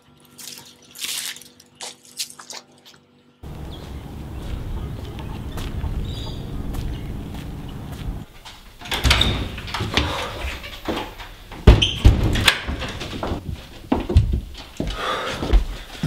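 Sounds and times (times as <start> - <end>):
steady low rumble: 3.4 - 8.3
door clicks and knocks: 8.8 - 13.4.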